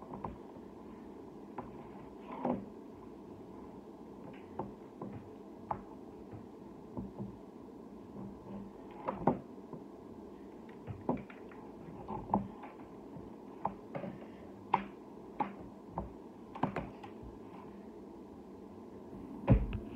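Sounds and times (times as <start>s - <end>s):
low room hum: 0.0s - 19.9s.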